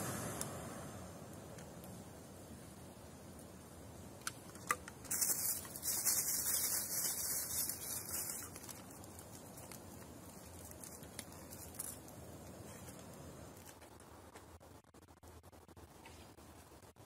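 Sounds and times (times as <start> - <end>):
paper crinkling and rustling: 5.0 - 13.0.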